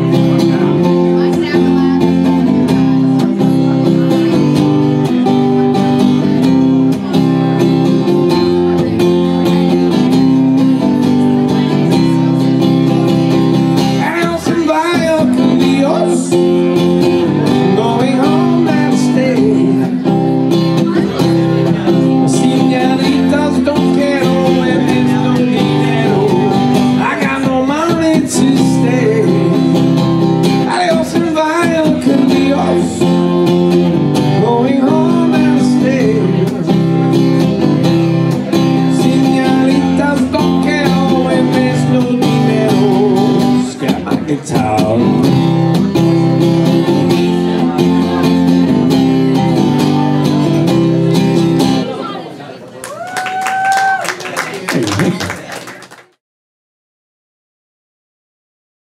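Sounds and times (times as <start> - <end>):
acoustic guitar strumming: 0.0 - 52.1
man singing into a microphone: 13.8 - 20.2, 20.8 - 37.6, 38.3 - 48.6.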